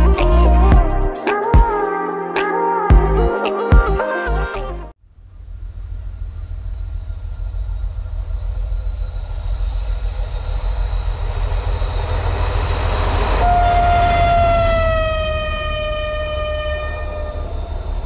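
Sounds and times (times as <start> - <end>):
locomotive engine and wheel rumble: 5.1 - 18.0
locomotive whistle: 13.0 - 18.0.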